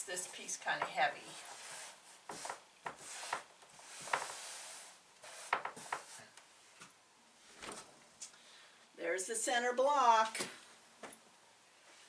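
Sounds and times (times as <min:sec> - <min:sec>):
fabric rustling and rubbing: 0:01.2 - 0:06.8.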